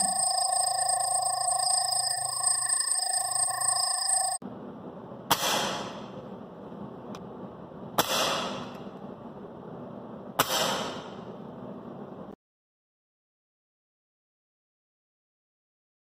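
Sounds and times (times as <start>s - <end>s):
air rifle shots: 10.4s - 11.2s.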